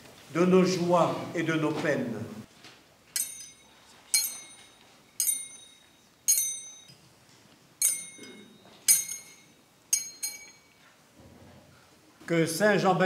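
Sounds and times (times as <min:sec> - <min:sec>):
thurible chains clinking: 0:03.1 - 0:07.1, 0:07.8 - 0:11.0.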